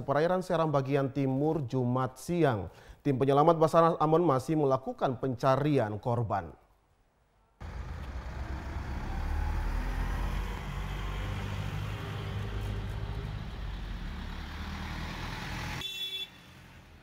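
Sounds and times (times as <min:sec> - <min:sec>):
truck engine rumbling: 0:07.6 - 0:17.0.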